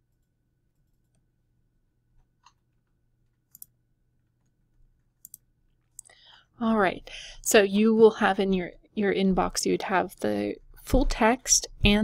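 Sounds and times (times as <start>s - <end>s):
computer mouse clicks: 0.1s - 1.3s, 3.4s - 3.8s, 4.4s - 6.2s.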